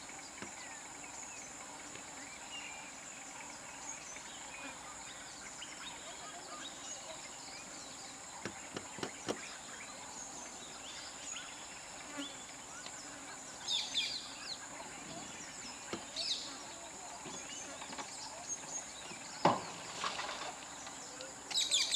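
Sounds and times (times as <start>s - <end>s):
high insect drone: 0.0s - 21.9s
bird chirps: 20.8s - 21.9s.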